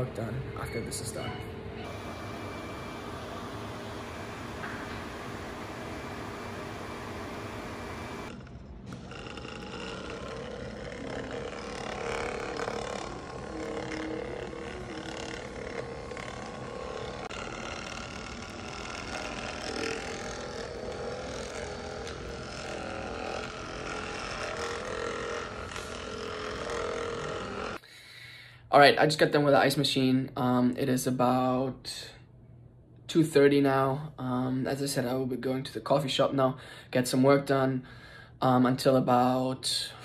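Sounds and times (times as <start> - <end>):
therapy machine humming: 0.0 - 27.9
massage gun buzzing: 0.7 - 27.8.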